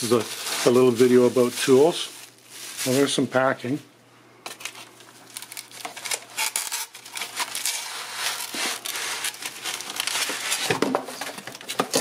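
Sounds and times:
foam and cardboard crinkling: 0:00.0 - 0:03.8, 0:04.6 - 0:12.0.

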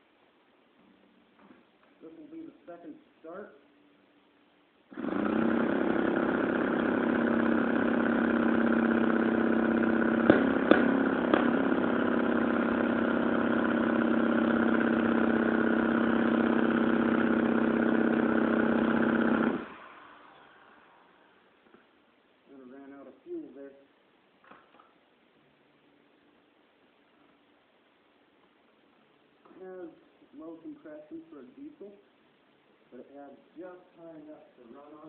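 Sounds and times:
two-stroke engine running: 0:04.9 - 0:19.8.

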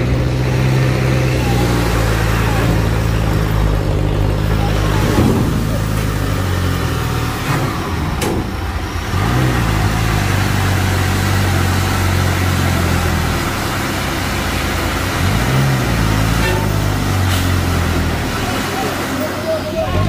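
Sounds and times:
diesel truck engine labouring: 0:00.0 - 0:20.0.

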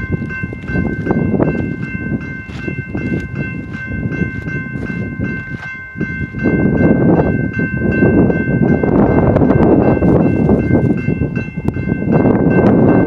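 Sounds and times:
crossing bells ringing: 0:00.0 - 0:13.0.

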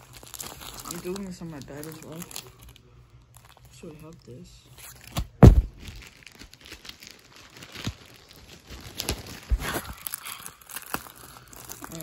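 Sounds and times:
plastic packaging crinkling: 0:00.0 - 0:12.0
loud thump: 0:05.4 - 0:05.9.

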